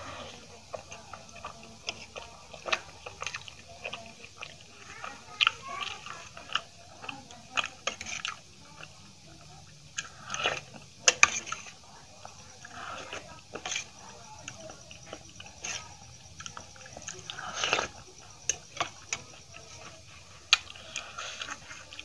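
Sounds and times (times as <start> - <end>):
wet chewing and lip-smacking: 0.4 - 22.0
spoon scraping in steel bowl: 10.0 - 11.7.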